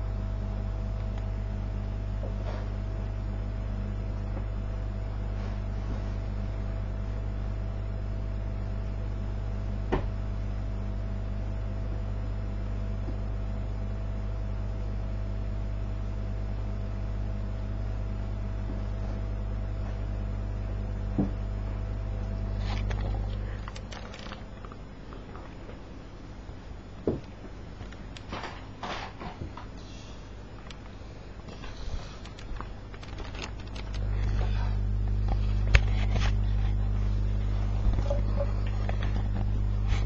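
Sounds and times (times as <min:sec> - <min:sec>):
computer electrical hum: 0:00.0 - 0:40.0.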